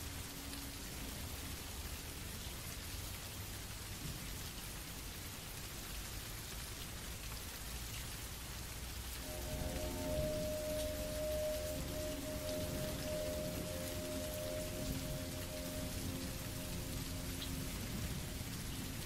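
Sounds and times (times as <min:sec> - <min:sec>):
steady rain falling: 0:00.0 - 0:19.0
low rumble: 0:09.2 - 0:19.0.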